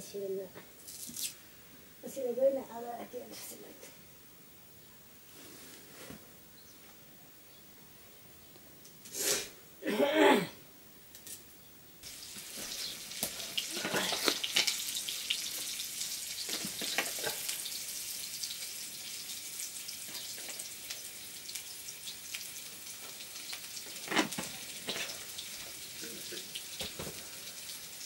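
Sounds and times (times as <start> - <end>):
wood fire hissing and crackling: 8.9 - 9.7, 12.0 - 28.0.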